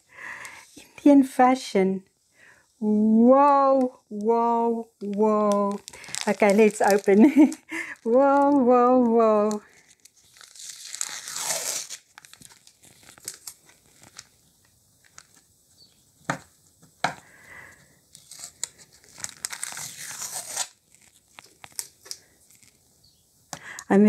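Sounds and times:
plastic and paper crinkling: 0:05.0 - 0:22.8
tape peeling off plastic: 0:05.5 - 0:08.6, 0:09.4 - 0:15.5, 0:18.1 - 0:22.8.

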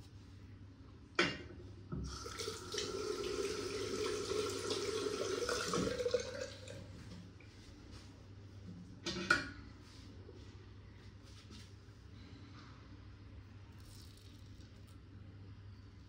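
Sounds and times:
tap water running into sink: 0:02.0 - 0:06.8.

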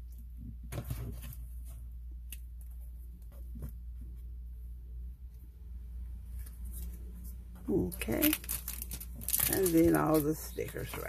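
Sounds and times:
steady low hum: 0:00.0 - 0:11.0
plastic crinkling: 0:07.7 - 0:11.0.

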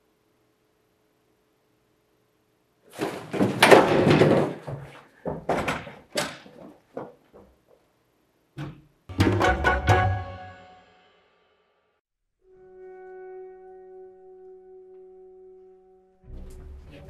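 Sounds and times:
person running footsteps: 0:03.0 - 0:07.9.

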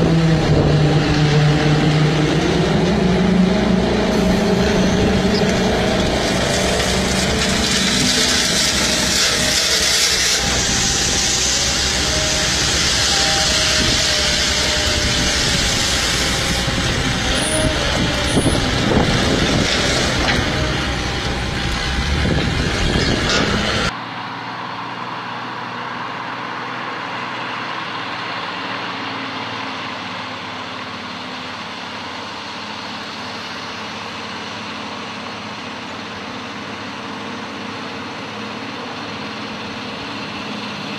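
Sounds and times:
heavy truck engine and road noise: 0:00.0 - 0:40.9
steady engine hum: 0:00.0 - 0:40.9.

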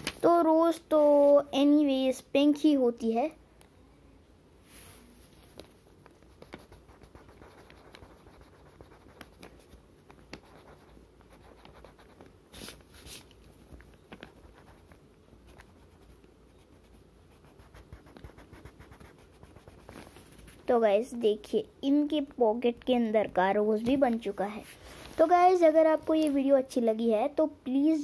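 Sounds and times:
crayon scratching on paper: 0:06.1 - 0:13.2, 0:14.1 - 0:20.6
crayon rubbing on paper: 0:06.2 - 0:13.2, 0:14.2 - 0:20.6.

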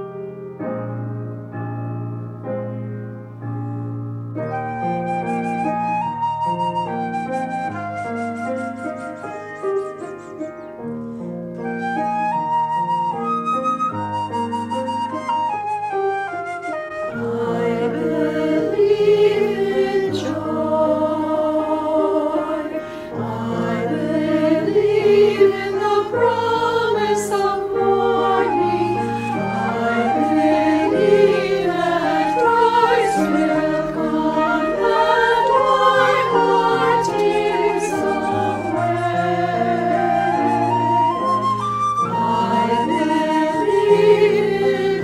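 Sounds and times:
piano: 0:00.0 - 0:45.0
flute: 0:04.4 - 0:10.9, 0:11.5 - 0:45.0
mixed choir singing: 0:17.1 - 0:45.0.

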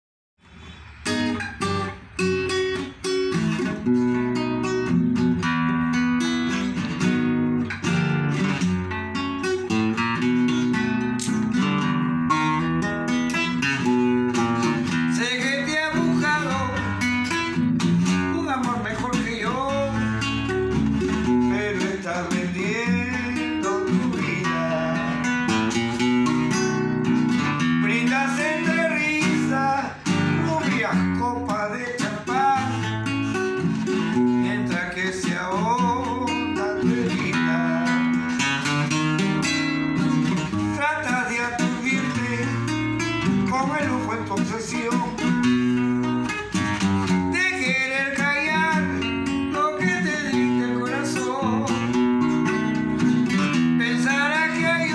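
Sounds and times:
classical guitar playing: 0:00.5 - 0:54.9
man singing: 0:14.6 - 0:26.8, 0:27.4 - 0:39.0, 0:40.3 - 0:46.3, 0:47.0 - 0:54.9.

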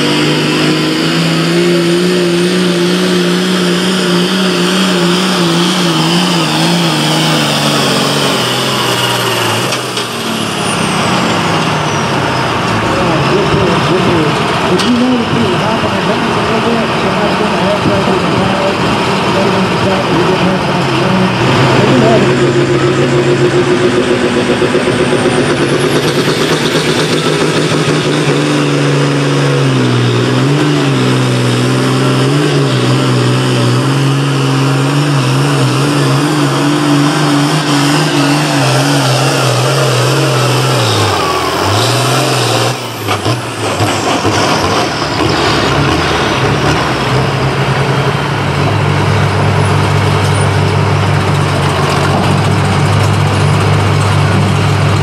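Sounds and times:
tractor diesel engine at full throttle: 0:00.0 - 0:55.0
engine idling: 0:34.1 - 0:55.0.

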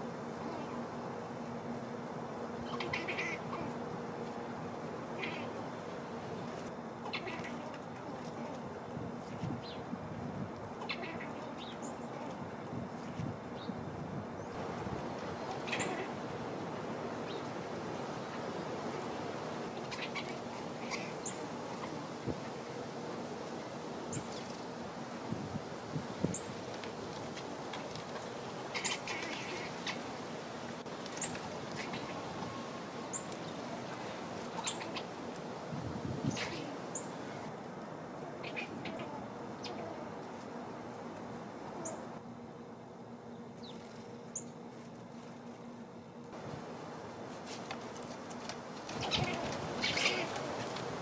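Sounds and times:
outdoor background hiss: 0:00.0 - 0:51.0
small birds chirping: 0:10.8 - 0:13.8, 0:17.1 - 0:22.4, 0:28.7 - 0:30.2, 0:31.0 - 0:35.2, 0:48.9 - 0:50.6.

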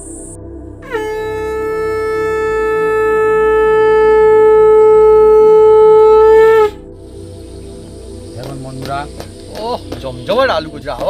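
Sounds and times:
faint background music: 0:00.0 - 0:11.0
long horn note: 0:00.8 - 0:07.0.

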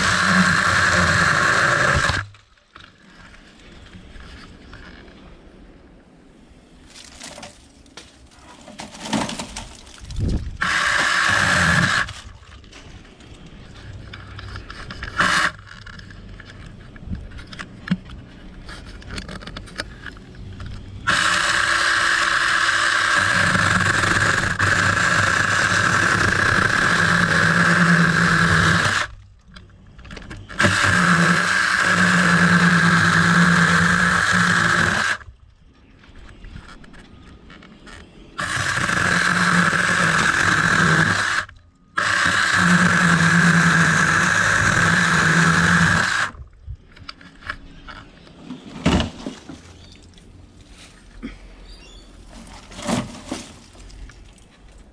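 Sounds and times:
electric chainsaw cutting branches: 0:00.0 - 0:02.4, 0:08.8 - 0:12.4, 0:15.0 - 0:16.0, 0:21.0 - 0:29.2, 0:30.4 - 0:35.2, 0:38.4 - 0:46.4.

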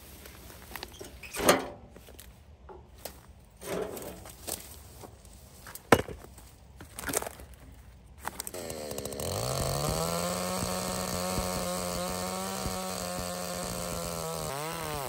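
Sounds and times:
chainsaw knocking on wood stump: 0:05.9 - 0:06.2, 0:09.5 - 0:13.5.

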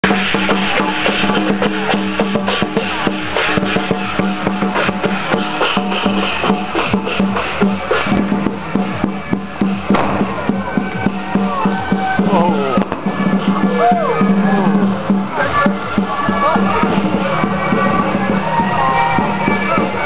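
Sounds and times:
procession percussion music: 0:00.0 - 0:20.0
firecrackers crackling: 0:02.8 - 0:13.6.

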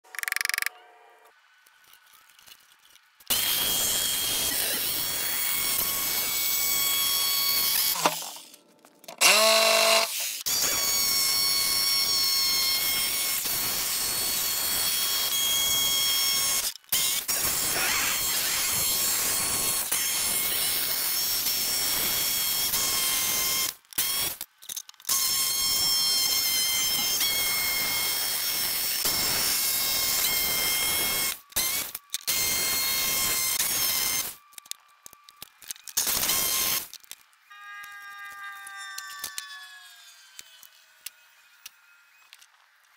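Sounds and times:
jigsaw cutting plywood: 0:03.3 - 0:08.5, 0:09.1 - 0:24.3, 0:25.1 - 0:34.3, 0:35.9 - 0:36.9.

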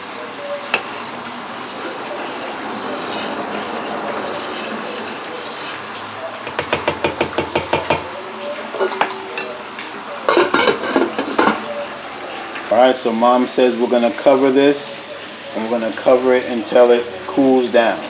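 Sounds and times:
metal ladle stirring in pot: 0:00.7 - 0:08.1, 0:10.3 - 0:11.6
ladle knocking against pot: 0:06.5 - 0:08.1
steel lid clattering: 0:10.3 - 0:11.6.

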